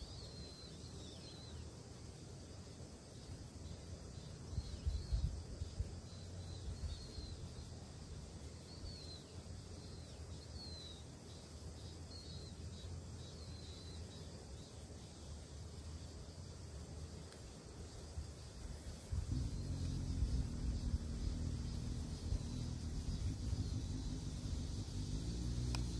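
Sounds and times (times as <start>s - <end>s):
wind rumble on microphone: 4.5s - 6.0s, 19.0s - 25.9s.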